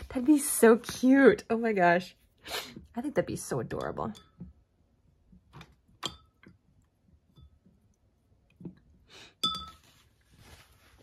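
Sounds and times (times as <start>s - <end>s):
paintbrush clinking glass jar: 6.0s - 6.6s, 9.3s - 10.0s.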